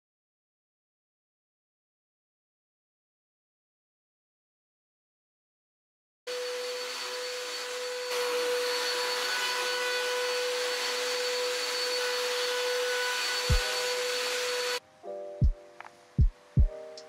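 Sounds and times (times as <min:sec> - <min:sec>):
vacuum cleaner running on carpet: 0:06.3 - 0:14.8.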